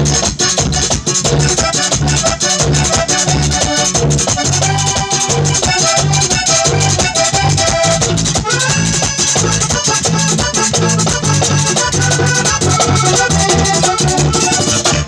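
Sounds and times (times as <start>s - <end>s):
bass guitar: 0.0s - 15.0s
button accordion melody: 0.0s - 15.0s
hand drum: 0.0s - 15.0s
scraped guacharaca rhythm: 0.0s - 15.0s.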